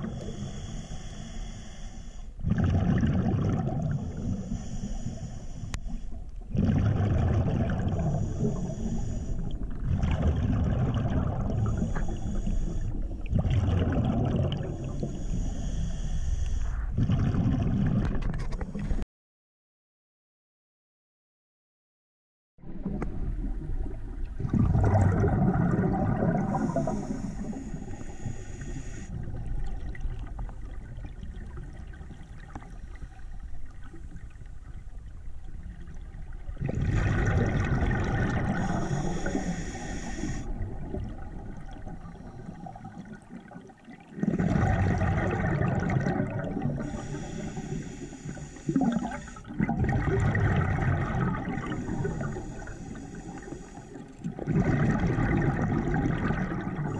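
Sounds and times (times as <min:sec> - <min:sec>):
diver exhaling bubbles underwater: 0:02.4 - 0:04.6, 0:06.5 - 0:08.8, 0:09.5 - 0:15.2, 0:16.7 - 0:19.0, 0:22.7 - 0:28.2, 0:36.4 - 0:56.9
thin regulator hiss: 0:38.6 - 0:40.5, 0:46.9 - 0:49.4.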